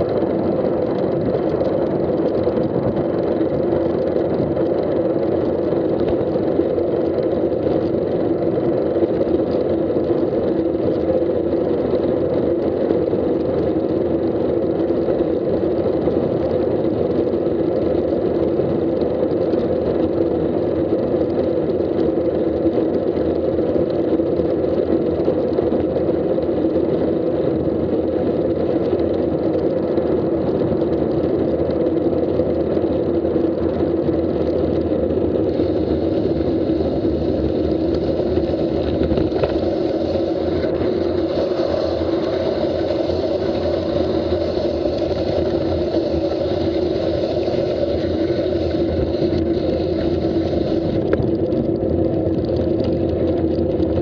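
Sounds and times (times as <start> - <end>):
wind rush: 35.1 - 53.2
steady low drone: 35.2 - 52.6.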